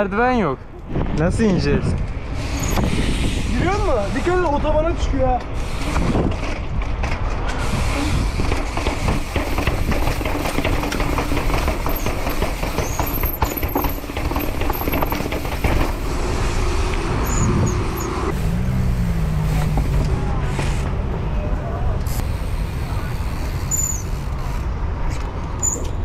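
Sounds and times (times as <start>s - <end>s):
steady rushing noise: 0.0s - 25.6s
bike knocking down stone stairs: 8.4s - 16.0s.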